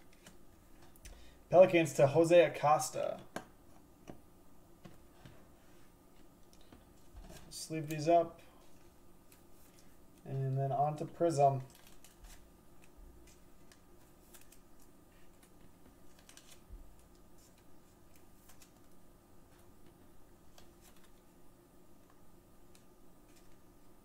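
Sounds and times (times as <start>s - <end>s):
trading cards clicking and rustling: 8.7s - 19.0s, 20.5s - 21.2s.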